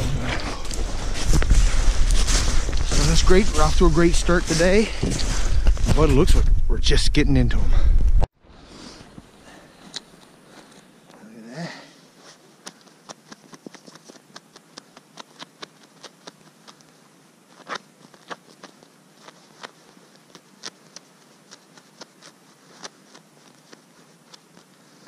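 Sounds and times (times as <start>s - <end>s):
feathers being plucked by hand: 12.3s - 25.0s.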